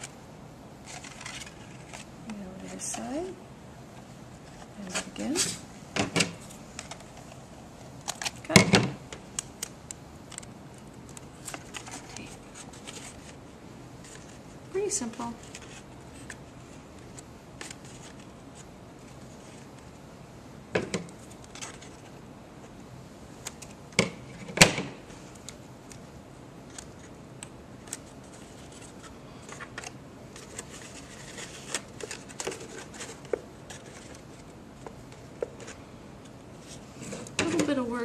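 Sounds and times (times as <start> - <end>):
paper rustling and crinkling: 0.8 - 3.3, 10.3 - 13.4, 14.0 - 19.9, 21.2 - 22.8, 27.8 - 35.8.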